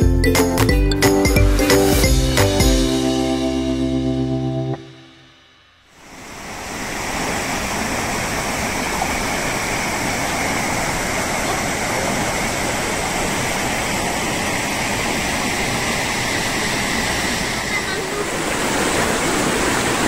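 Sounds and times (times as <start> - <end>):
stream rushing over stones: 6.0 - 20.0.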